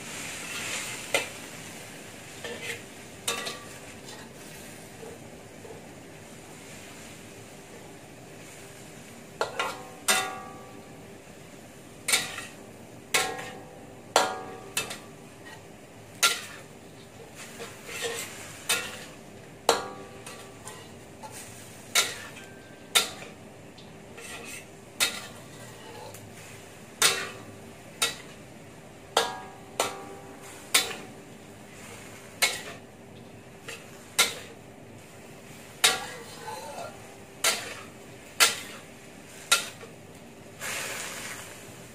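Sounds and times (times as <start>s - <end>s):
faint steady hum: 0.0s - 41.9s
metal spatula clanking in wok: 2.4s - 4.3s, 9.4s - 10.9s, 12.1s - 26.3s, 27.0s - 28.4s, 29.1s - 31.2s, 32.4s - 32.9s, 33.6s - 34.6s, 35.8s - 38.9s, 39.5s - 40.0s.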